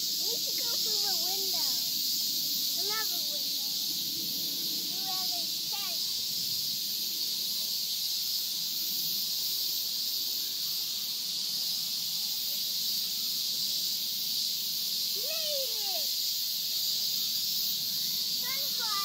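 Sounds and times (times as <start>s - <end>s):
insects chorus: 0.0s - 19.0s
child squealing: 15.2s - 16.1s.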